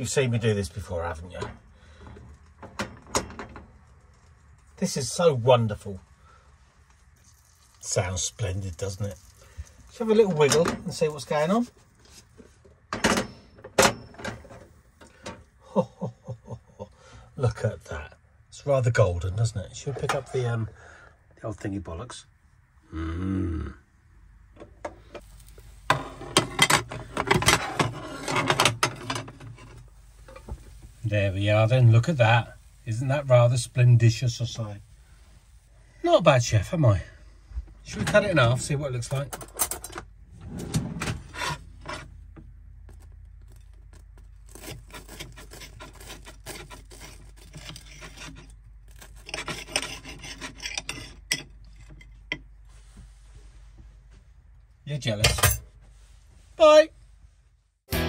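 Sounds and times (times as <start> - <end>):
metal pan clattering and rattling: 25.9 - 29.7
knife sawing through toast: 44.5 - 51.0.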